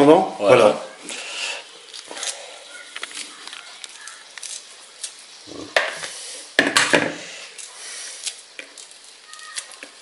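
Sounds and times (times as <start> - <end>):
peel tearing and rustling: 1.8 - 5.4, 7.5 - 10.0.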